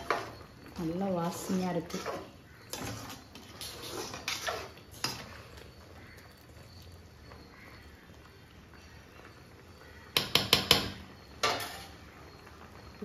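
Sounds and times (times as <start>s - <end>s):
metal ladle scraping a pot: 1.2s - 6.9s.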